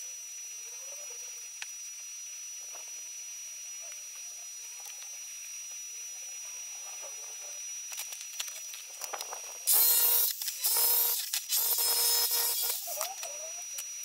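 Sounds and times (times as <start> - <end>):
power tool whining: 7.6 - 14.0.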